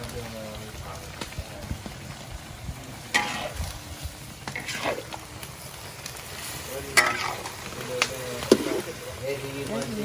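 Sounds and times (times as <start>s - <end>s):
meat stir-frying: 0.0s - 10.0s
spatula scraping wok: 3.0s - 5.4s, 6.3s - 7.8s.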